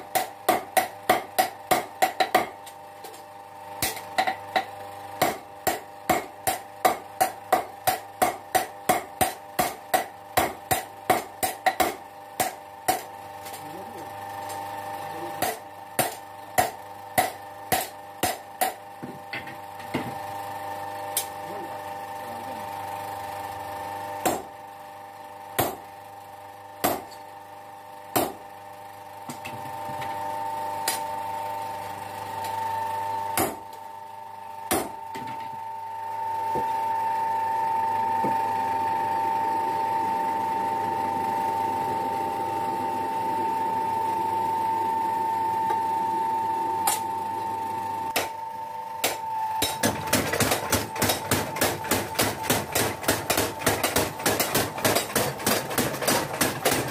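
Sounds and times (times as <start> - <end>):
mechanical forging hammer pounding: 0.0 - 2.7, 3.8 - 13.1, 15.4 - 20.2, 24.2 - 24.6, 25.6 - 25.8, 26.8 - 27.2, 28.1 - 28.4, 33.4 - 33.8, 34.6 - 35.4, 48.1 - 48.4, 49.0 - 56.9
steady machine hum: 0.0 - 56.9.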